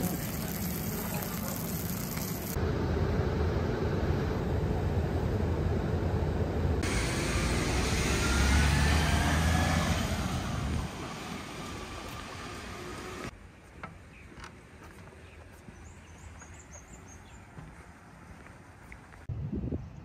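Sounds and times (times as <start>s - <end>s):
traffic rumble: 0.0s - 19.5s
vehicle accelerating: 5.7s - 13.3s.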